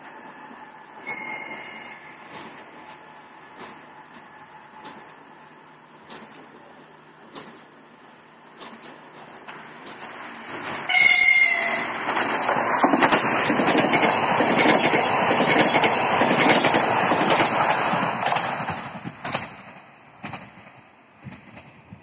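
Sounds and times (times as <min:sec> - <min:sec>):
train passing at speed: 0:00.0 - 0:22.0
wheels clicking over rail joints: 0:02.2 - 0:05.4, 0:06.0 - 0:07.8, 0:08.5 - 0:21.9
train horn blast: 0:10.9 - 0:12.0.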